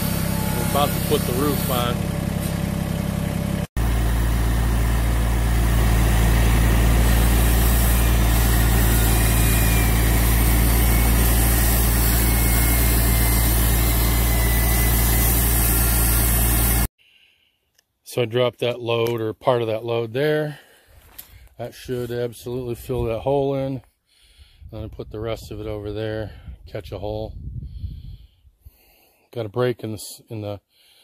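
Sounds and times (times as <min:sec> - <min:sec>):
tractor engine running: 0:00.0 - 0:16.9.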